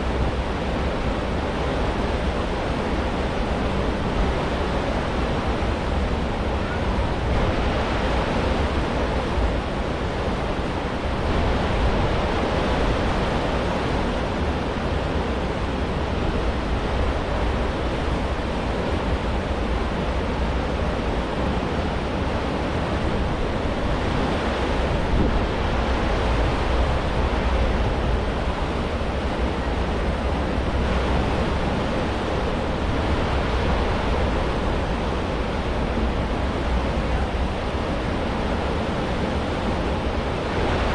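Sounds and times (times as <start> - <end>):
ship wake churning water: 0.0 - 40.9
wind on microphone: 0.0 - 40.9.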